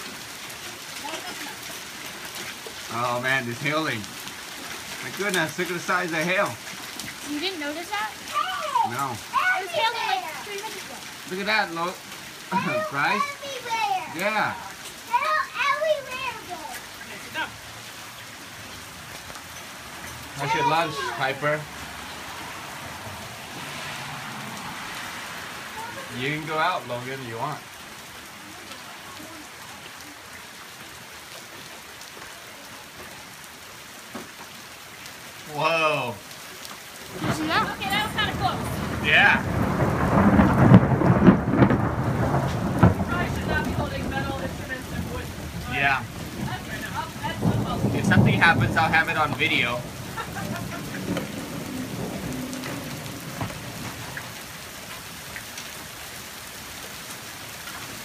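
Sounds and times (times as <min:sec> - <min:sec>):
rain falling on wet ground: 0:00.0 - 0:58.0.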